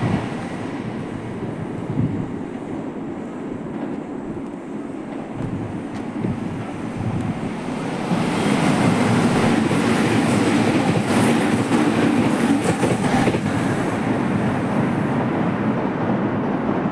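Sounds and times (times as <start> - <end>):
train wheels rumbling on rail: 0.0 - 16.9
clacks over rail joints: 3.7 - 7.4.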